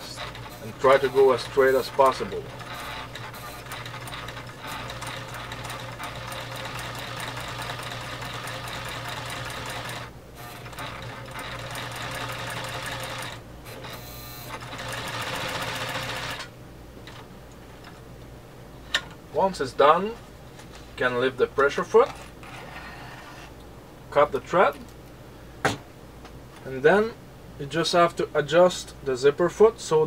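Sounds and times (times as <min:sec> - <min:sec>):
sewing machine stitching: 0:00.0 - 0:16.5.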